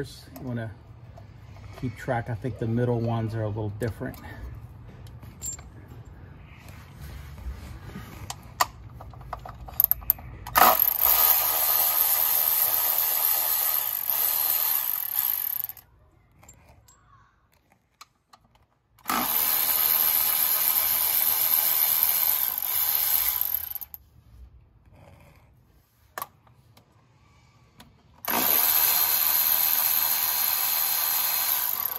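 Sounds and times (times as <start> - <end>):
power driver whirring: 10.5 - 15.8, 19.0 - 24.0, 28.2 - 31.9.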